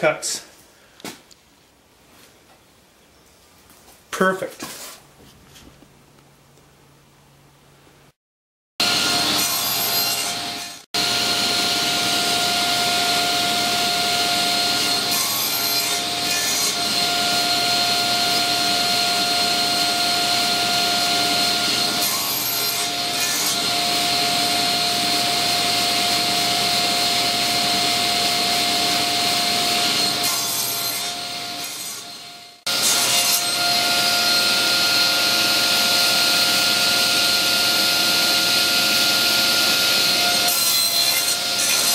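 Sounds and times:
table saw whining: 8.8s - 41.9s.

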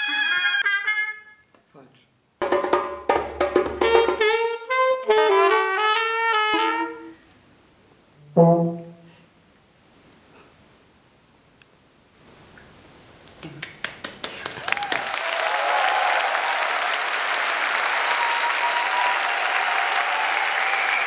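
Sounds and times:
audience applauding: 13.4s - 21.0s.

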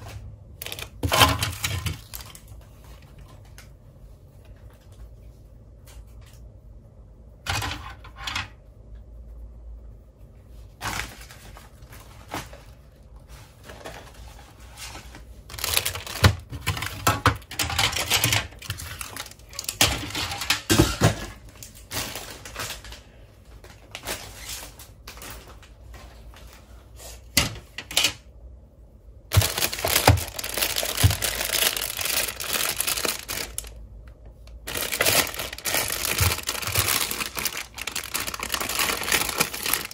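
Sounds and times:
plastic bag crinkling: 0.0s - 3.3s, 15.0s - 20.8s, 29.3s - 39.9s
plastic toy parts clattering: 0.6s - 2.5s, 7.5s - 8.5s, 15.5s - 23.0s, 29.3s - 33.8s, 34.6s - 39.9s.

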